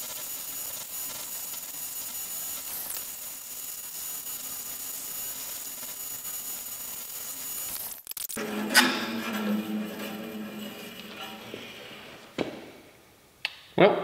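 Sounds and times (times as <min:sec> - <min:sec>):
bandsaw whirring: 0:07.4 - 0:12.8.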